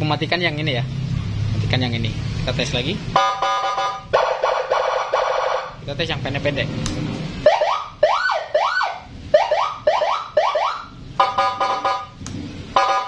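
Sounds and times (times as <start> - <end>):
siren whooping: 7.4 - 12.2.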